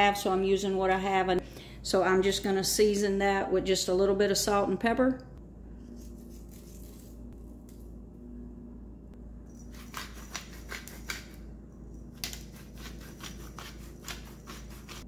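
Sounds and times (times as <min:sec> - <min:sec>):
pepper mill grinding: 0:06.0 - 0:07.9, 0:09.5 - 0:15.0.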